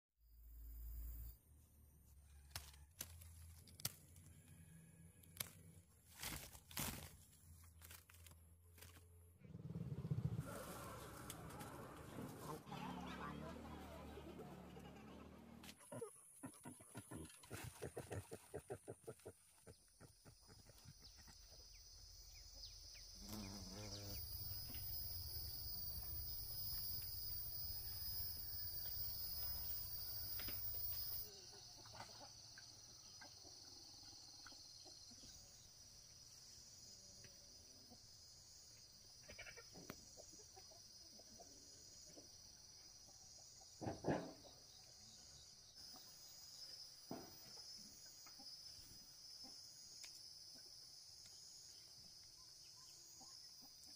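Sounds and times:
insects chirping: 16.1s - 53.9s.

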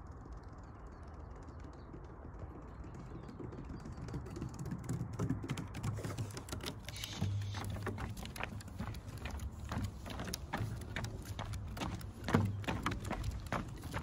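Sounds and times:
dog claws clicking on wood: 5.0s - 14.0s.

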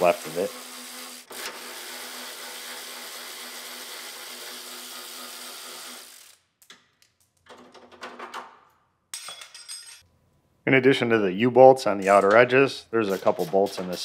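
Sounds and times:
cordless electric ratchet running: 0.0s - 6.4s.

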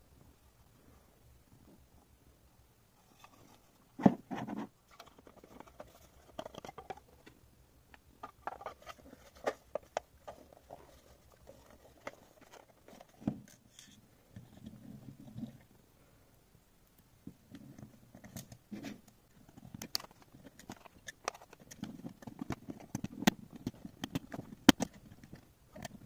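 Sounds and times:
plastic clicks and scrapes: 3.0s - 7.4s, 8.2s - 15.7s, 17.3s - 26.0s.

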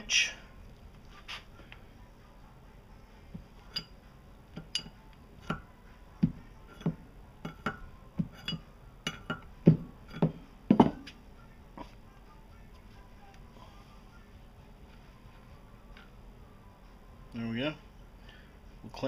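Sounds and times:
wrench clinking against metal: 3.6s - 4.0s, 4.6s - 5.7s, 6.7s - 11.0s.

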